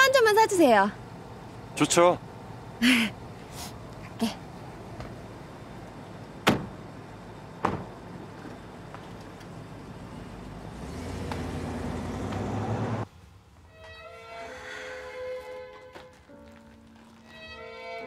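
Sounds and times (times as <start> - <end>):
car engine pulling away: 4.5 - 13.1
car doors shutting: 6.4 - 6.9, 7.6 - 9.3.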